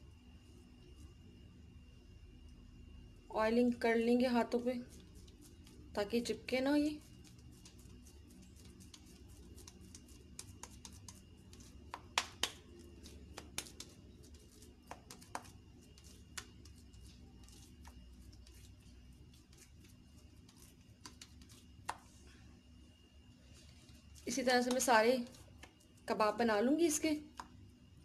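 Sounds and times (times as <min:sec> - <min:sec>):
hands patting wet mince: 0:04.8 - 0:22.2, 0:23.6 - 0:26.1.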